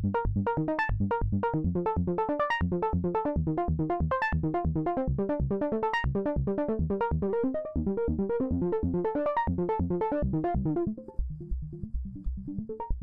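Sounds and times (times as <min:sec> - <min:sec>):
looping synthesizer notes: 0:00.0 - 0:13.0
pulsing bass: 0:00.0 - 0:13.0.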